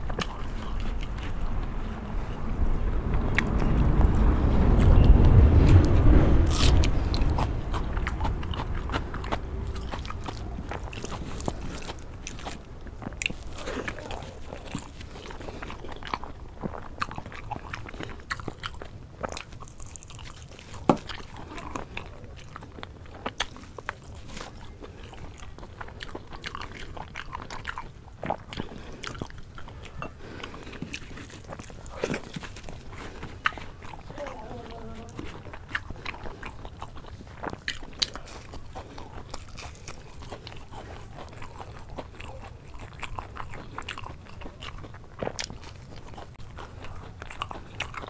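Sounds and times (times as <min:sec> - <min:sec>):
low rumble: 0:00.0 - 0:18.0
chewing with wet mouth clicks: 0:00.0 - 0:48.0.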